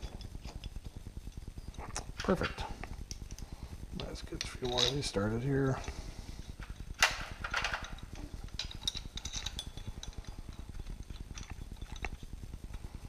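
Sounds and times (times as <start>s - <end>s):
metal bolts clinking: 4.0s - 5.9s, 6.6s - 12.2s.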